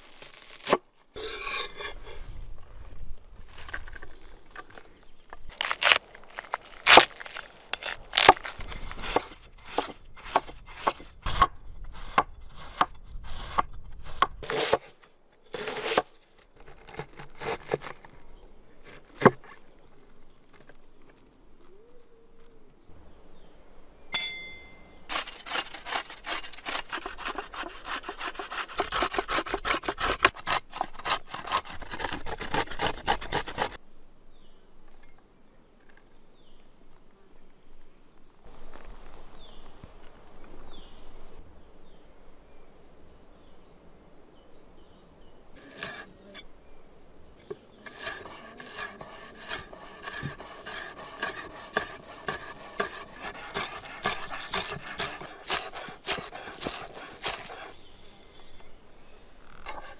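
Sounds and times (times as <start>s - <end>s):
carrot scraping on metal grater: 25.1s - 33.8s, 45.6s - 46.1s, 47.8s - 57.8s
knife chopping on wooden board: 47.9s - 57.7s.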